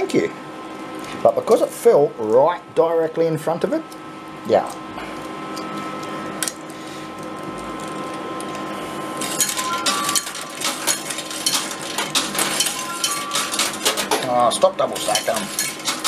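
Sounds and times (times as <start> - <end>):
machine mechanical hum: 0.0 - 16.0
coins clinking and clattering: 9.2 - 14.2, 15.0 - 16.0.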